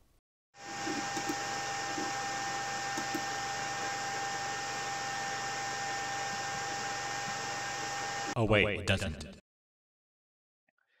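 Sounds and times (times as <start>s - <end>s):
computer cooling fans whirring: 0.6s - 8.4s
thin steady whine: 0.6s - 8.4s.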